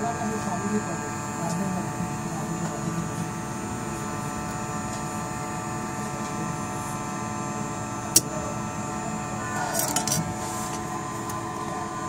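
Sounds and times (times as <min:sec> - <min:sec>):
hot air blower humming: 0:00.0 - 0:12.0.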